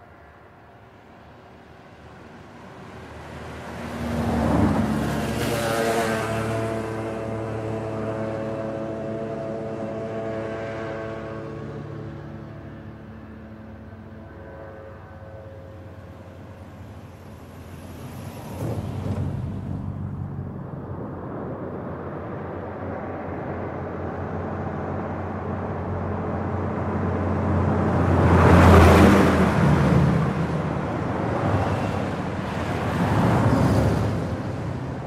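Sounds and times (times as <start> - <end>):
fast road traffic passing: 0.0 - 35.0.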